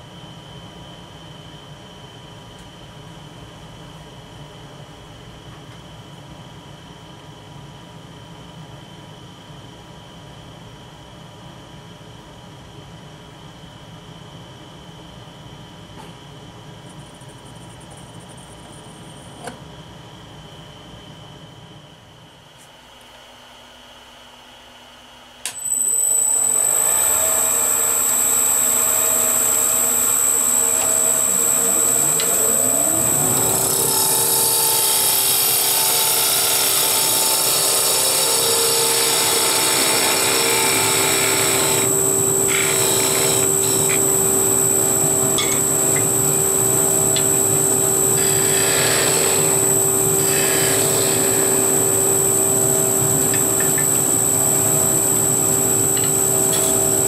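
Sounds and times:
lathe motor whining: 25.5 - 57.0
turning tool cutting wood: 25.6 - 57.0.

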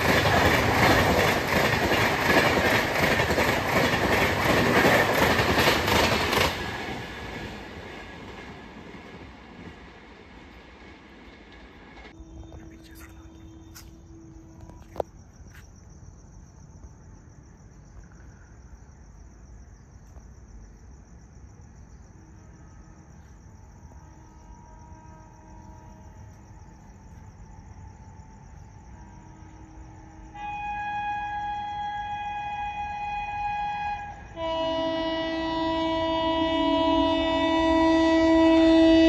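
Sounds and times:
crickets trilling: 11.5 - 39.0.

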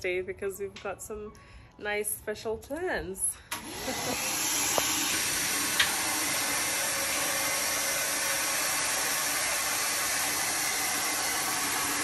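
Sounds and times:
vacuum cleaner running: 3.5 - 12.0.

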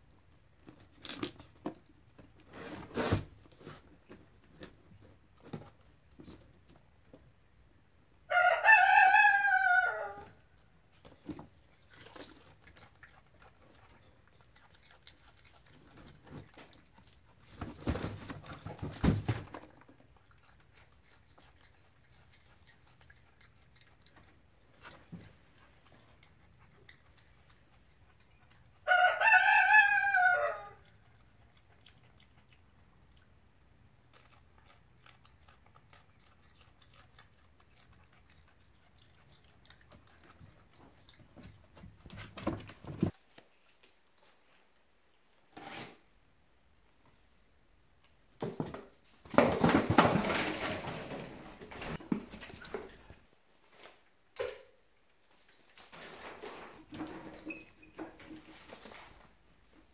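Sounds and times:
rooster crowing: 8.3 - 10.4, 28.8 - 30.8.

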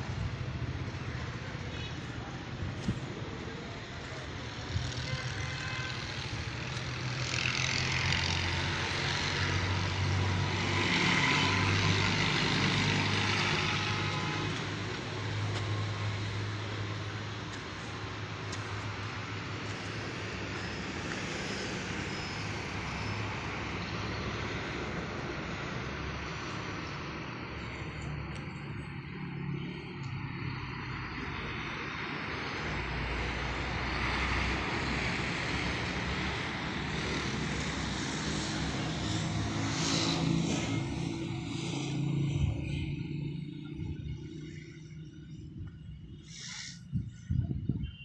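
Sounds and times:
engine drone: 0.0 - 47.1.

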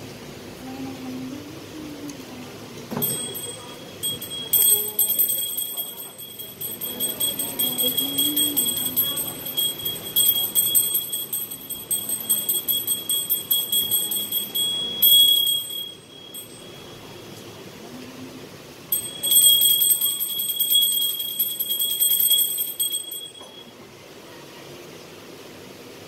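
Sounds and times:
hand bell ringing rapidly: 3.0 - 17.0, 18.9 - 23.7.

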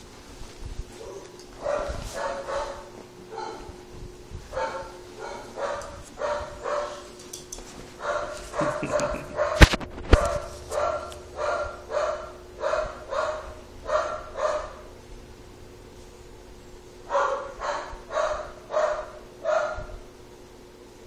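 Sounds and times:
small dog barking: 1.0 - 3.7, 4.5 - 7.1, 8.0 - 14.9, 17.1 - 20.0.

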